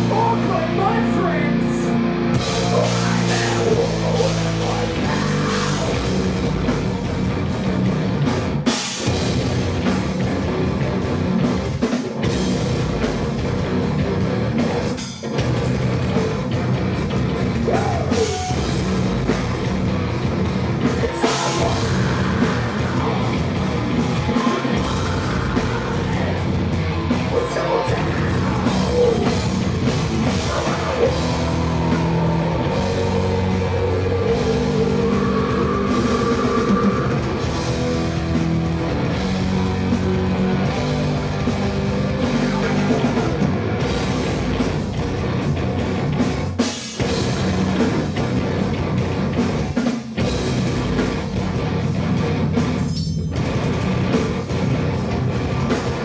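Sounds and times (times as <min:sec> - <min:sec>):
vocals: 0:00.0 - 0:06.8, 0:17.5 - 0:19.4, 0:20.5 - 0:38.6, 0:39.5 - 0:43.8
drum kit: 0:00.0 - 0:56.0
electric guitars: 0:00.0 - 0:56.0.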